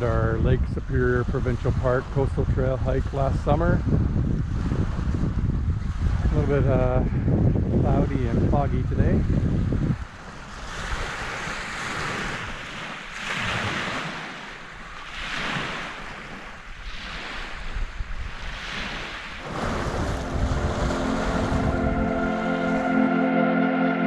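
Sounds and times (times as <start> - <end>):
wind rumbling on microphone: 0.0 - 23.0
waves washing onto shore: 9.2 - 23.1
music: 19.8 - 24.0.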